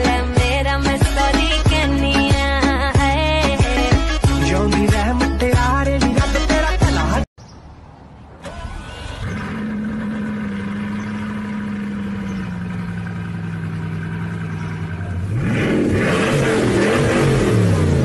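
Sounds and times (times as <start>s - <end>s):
car engine idling and revving: 8.4s - 18.0s.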